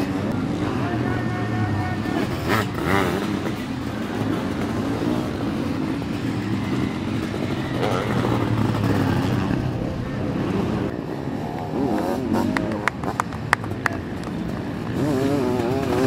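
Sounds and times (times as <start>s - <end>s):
motocross engines revving: 0.0s - 16.0s.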